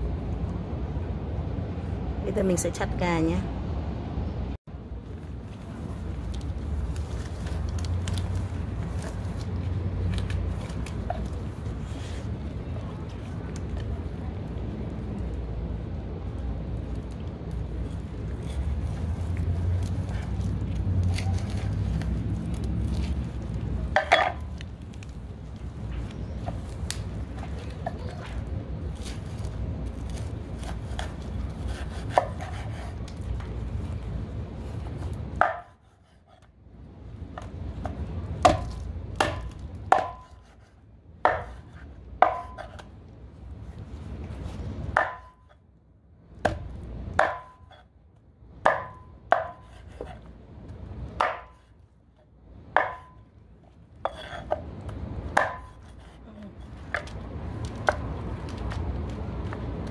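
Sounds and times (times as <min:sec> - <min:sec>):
cleaver chopping on wooden board: 0:38.4 - 0:40.5, 0:41.2 - 0:42.8, 0:47.2 - 0:47.7, 0:48.7 - 0:50.0, 0:51.2 - 0:51.7, 0:55.3 - 0:56.0.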